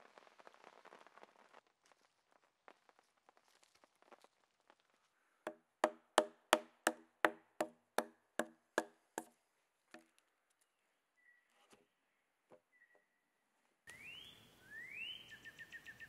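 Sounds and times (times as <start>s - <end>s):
axe chopping into a log: 5.5s - 9.3s.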